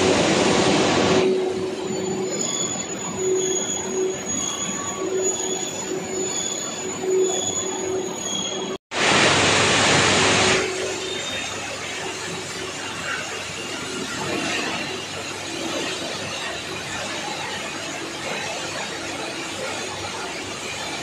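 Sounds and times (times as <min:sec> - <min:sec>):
machine hum with high whine: 0:00.0 - 0:21.0
faint squeal: 0:01.2 - 0:08.8.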